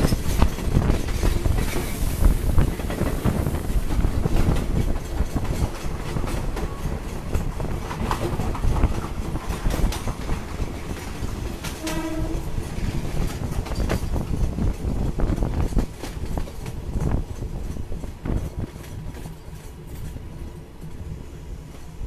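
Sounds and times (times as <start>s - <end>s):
train wheels rumbling over rails: 0.0s - 22.0s
train horn: 11.7s - 12.7s.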